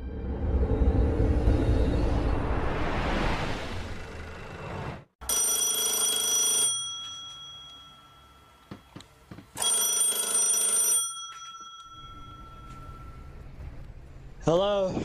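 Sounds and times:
telephone bell ringing: 0:05.2 - 0:09.0, 0:09.6 - 0:13.4.

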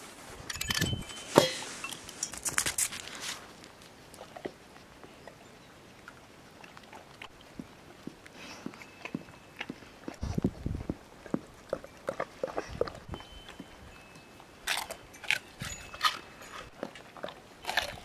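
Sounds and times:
dog licking and chewing from bowl: 0:06.1 - 0:13.8, 0:14.4 - 0:18.0.

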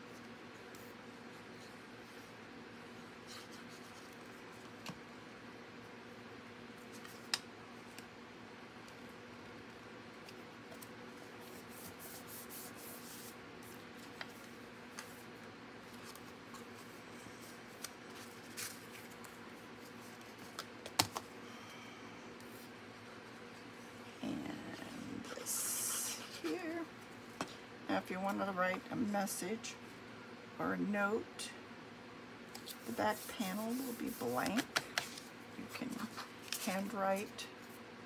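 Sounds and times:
paper rustling: 0:15.8 - 0:21.0.

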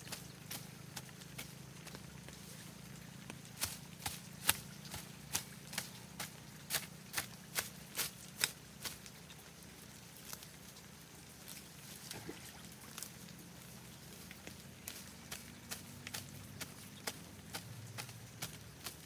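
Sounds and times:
hoe chopping into soil: 0:03.6 - 0:09.0.

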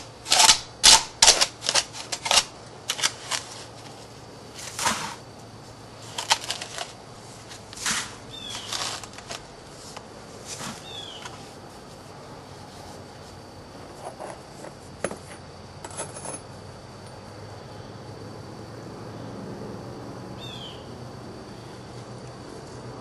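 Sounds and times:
sand scraping: 0:02.9 - 0:05.3, 0:06.0 - 0:14.8.

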